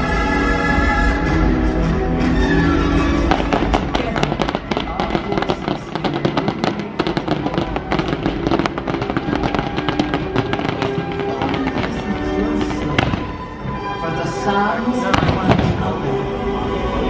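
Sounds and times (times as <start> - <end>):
music: 0.0 - 17.0
fireworks crackling and popping: 3.2 - 13.6, 15.1 - 16.0.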